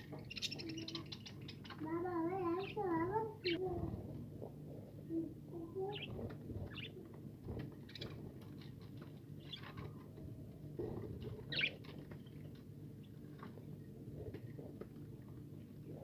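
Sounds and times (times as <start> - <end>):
birds rustling and pecking seed: 5.8 - 16.0
budgerigars chirping: 11.5 - 11.8.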